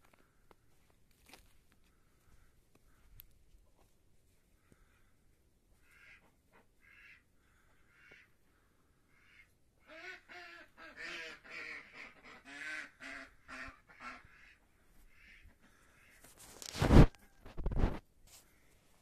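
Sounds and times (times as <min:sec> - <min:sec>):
duck quacking: 0:05.8 - 0:07.3, 0:07.9 - 0:08.3, 0:09.1 - 0:16.2.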